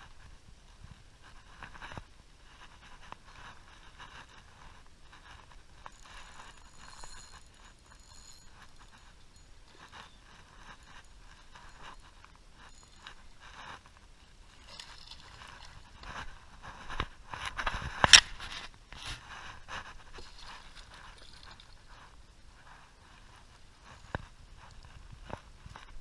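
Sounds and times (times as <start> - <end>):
rod and line handling: 1.6 - 26.0
fishing reel cranking: 5.9 - 12.1.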